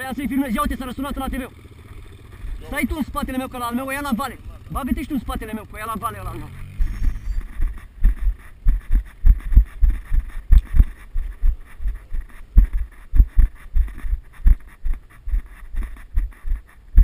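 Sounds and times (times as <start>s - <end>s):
footsteps dull thumps: 7.4s - 17.0s.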